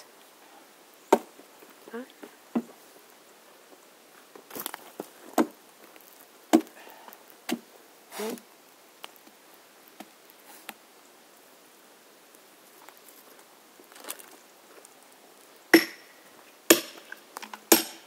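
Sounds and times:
axe chopping wood: 0:06.5 - 0:06.8, 0:15.7 - 0:16.0, 0:16.7 - 0:17.0, 0:17.7 - 0:18.0.

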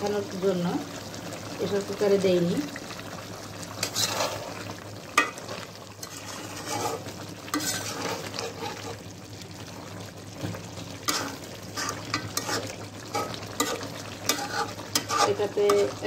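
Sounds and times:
cooking liquid hiss: 0:00.0 - 0:16.0
gravy bubbling: 0:00.5 - 0:16.0
spatula scraping metal pot: 0:03.8 - 0:04.6, 0:05.2 - 0:09.1, 0:11.0 - 0:16.0.

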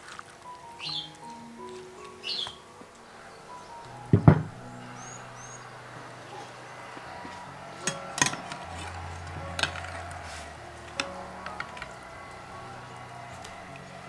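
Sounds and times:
metal utensil clinking on dish: 0:07.8 - 0:08.6.

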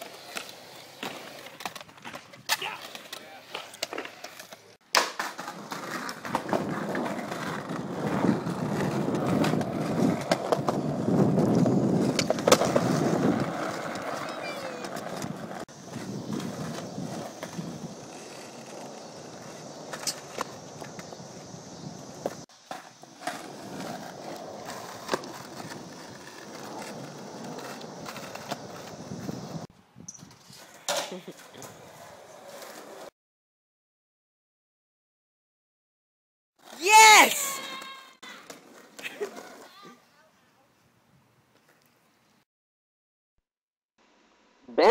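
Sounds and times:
skateboard clacks: 0:00.0 - 0:29.6
skateboard wheels rolling on concrete: 0:00.0 - 0:33.1, 0:36.6 - 0:42.4.

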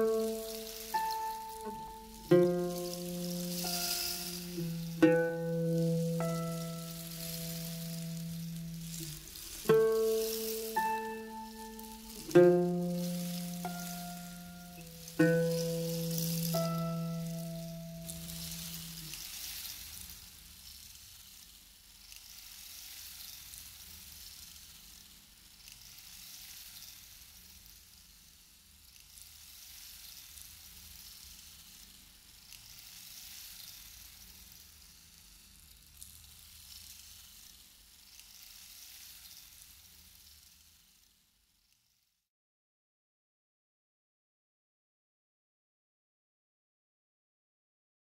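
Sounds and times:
faint crackly hiss: 0:00.0 - 0:42.2.

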